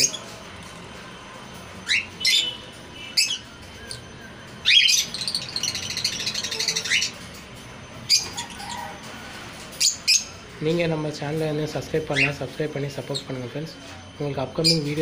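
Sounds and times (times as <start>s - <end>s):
high chattering bird chirps: 1.8s - 9.0s, 9.7s - 10.5s, 11.8s - 13.6s
birds squawking: 1.8s - 11.0s, 11.8s - 13.9s.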